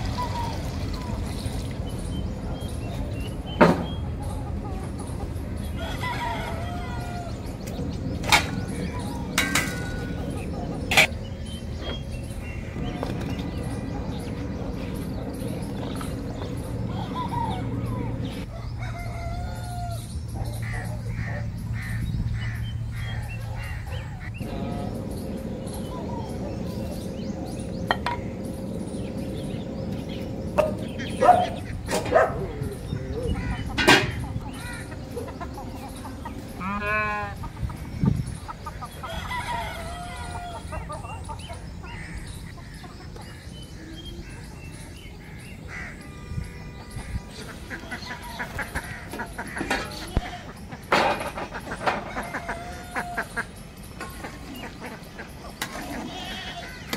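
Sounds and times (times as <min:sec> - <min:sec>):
chickens clucking: 0:00.0 - 0:46.0, 0:46.7 - 0:56.9
steady low hum: 0:00.0 - 0:56.1
harsh bird calls: 0:00.0 - 0:56.9.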